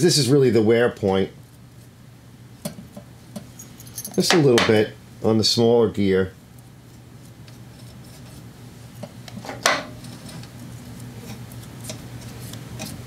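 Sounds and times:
steady low hum: 0.0s - 13.0s
brush rubbing and scraping: 6.5s - 9.0s, 10.0s - 13.0s.

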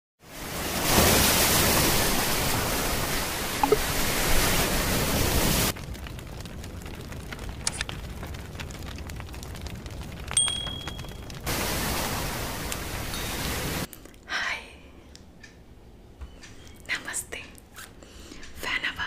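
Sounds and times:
surf washing over rocks: 0.3s - 6.0s, 10.4s - 13.9s.

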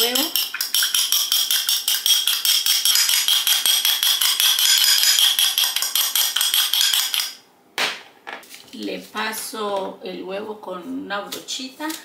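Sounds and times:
fork clinking in glass bowl: 0.0s - 7.4s.

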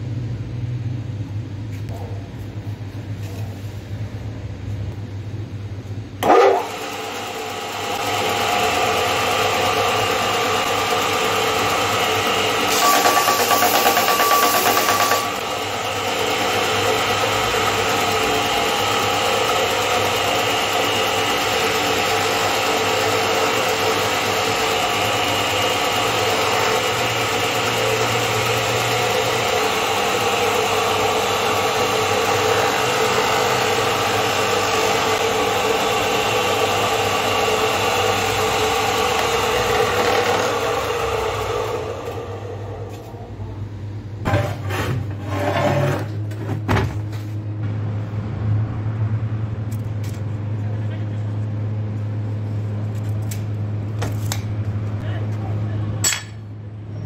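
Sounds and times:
belt grinder motor running: 6.2s - 43.0s.

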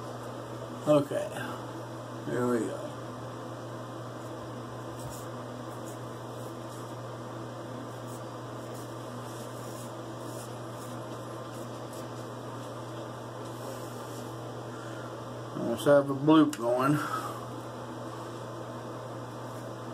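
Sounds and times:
low room hum and hiss: 0.0s - 19.9s.

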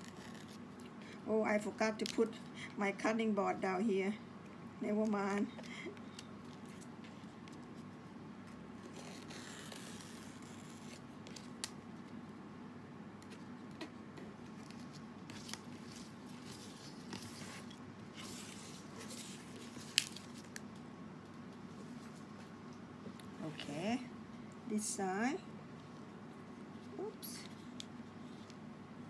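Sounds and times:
steady low hum: 0.0s - 29.0s
leaf crackling and snipping: 19.0s - 20.8s.

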